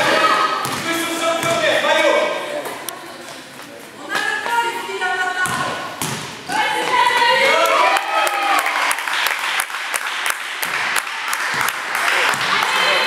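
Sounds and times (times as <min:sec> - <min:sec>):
basketball bouncing on floor: 0:00.6 - 0:01.7, 0:05.4 - 0:07.1.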